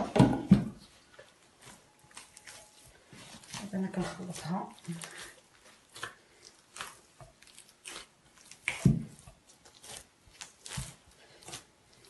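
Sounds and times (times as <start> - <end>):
dough squelching and slapping: 0.0 - 12.0
hands kneading dough: 0.0 - 12.0.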